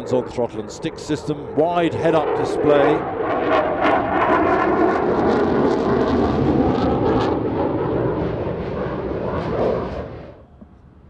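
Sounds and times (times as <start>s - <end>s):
fighter jet roar: 0.0s - 11.0s.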